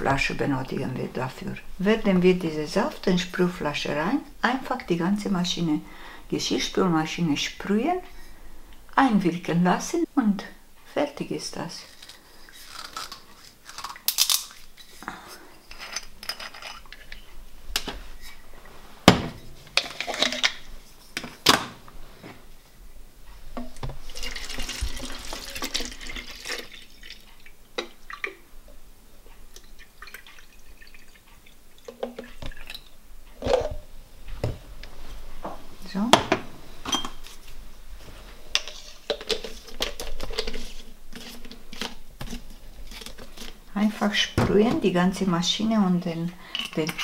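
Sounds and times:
liquid pouring into plastic bottle: 23.8s - 28.4s.

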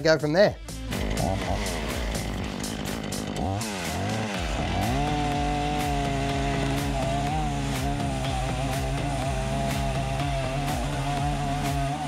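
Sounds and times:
chainsaw running: 0.6s - 12.0s.

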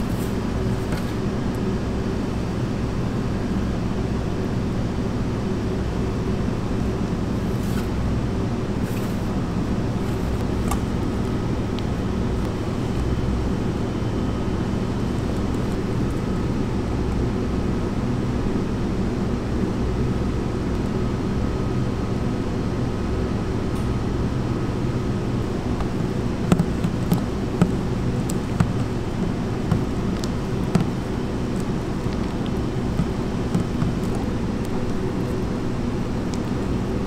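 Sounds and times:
kitchen equipment hum: 0.0s - 3.2s, 6.4s - 17.4s, 23.5s - 37.0s
spatula knocking on metal bowl: 26.5s - 31.0s.

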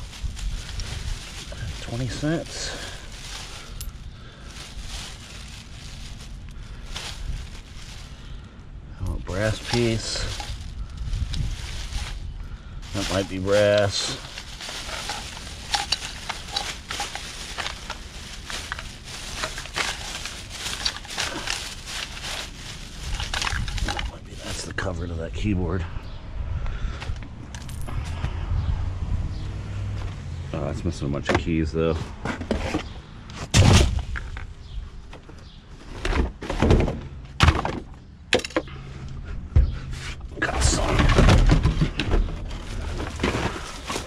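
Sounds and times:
rummaging through trash: 0.0s - 8.4s, 9.0s - 25.6s, 31.1s - 38.8s, 39.6s - 44.0s
junk thunking and knocking: 35.9s - 38.7s, 40.5s - 43.7s.

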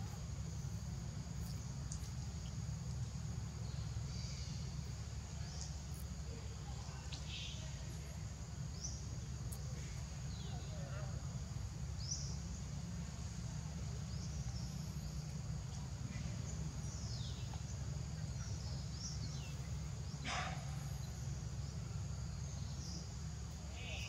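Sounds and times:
high insect drone: 0.0s - 24.0s.

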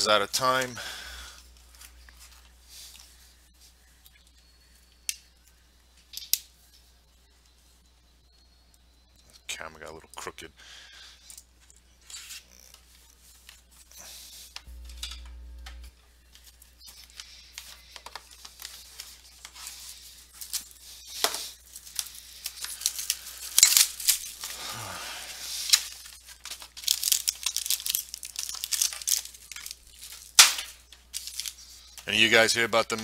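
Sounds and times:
electrical hum: 0.0s - 33.0s
plastic wrap tearing and crinkling: 18.2s - 31.8s.

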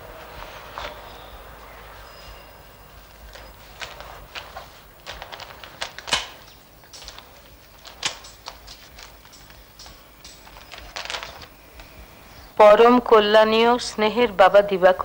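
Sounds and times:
paper crackling and rustling: 0.0s - 12.1s.

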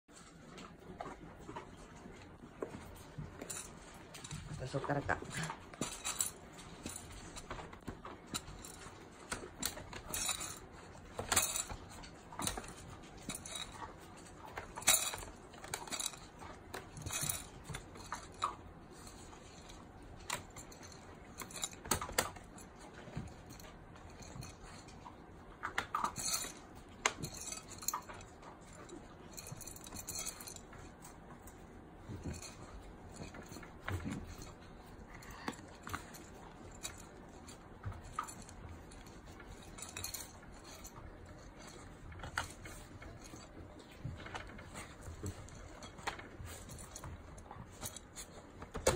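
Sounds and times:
kibble clinking in metal bowl: 2.7s - 31.1s.

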